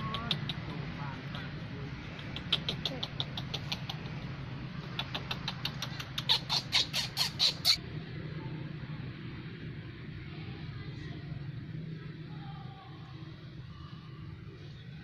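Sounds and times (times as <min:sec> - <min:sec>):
animal chirping calls: 0:04.9 - 0:07.8.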